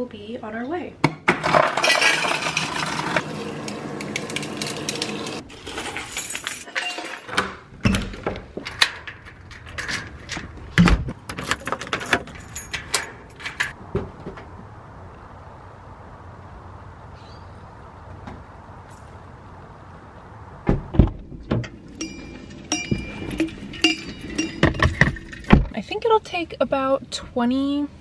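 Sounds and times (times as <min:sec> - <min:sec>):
keys jangling: 0:11.3 - 0:13.8.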